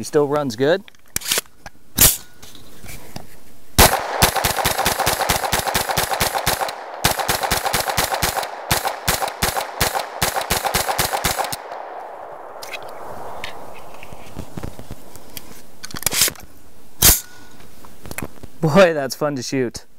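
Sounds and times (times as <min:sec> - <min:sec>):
rapid gunshots: 0:03.8 - 0:13.7.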